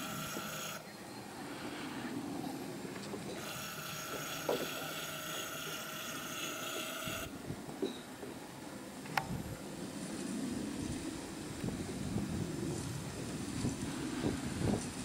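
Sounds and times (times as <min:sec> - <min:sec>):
thin high hum: 0:00.0 - 0:15.0
steady low rumble: 0:01.0 - 0:03.4, 0:08.4 - 0:15.0.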